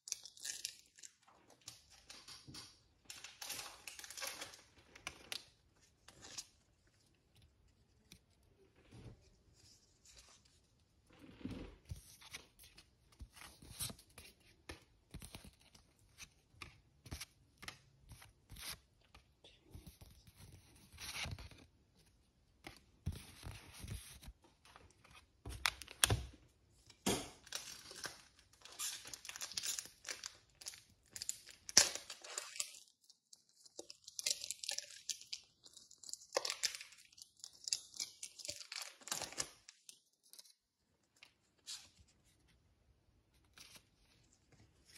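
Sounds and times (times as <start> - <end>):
cards and packaging rustling: 22.5 - 40.6.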